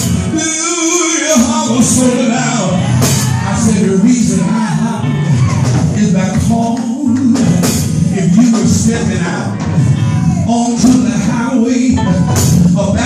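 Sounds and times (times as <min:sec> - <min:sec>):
gospel singing with band: 0:00.0 - 0:13.0
percussion hits: 0:12.0 - 0:13.0.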